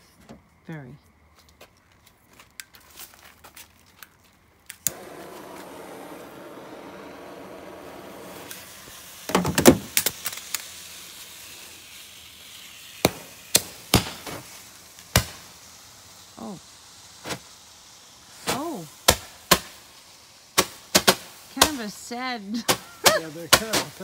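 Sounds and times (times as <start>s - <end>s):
firework hissing: 4.6s - 24.0s
firework pops: 4.7s - 11.6s, 12.6s - 15.7s, 17.2s - 17.6s, 18.4s - 19.8s, 20.6s - 22.0s, 22.6s - 24.0s.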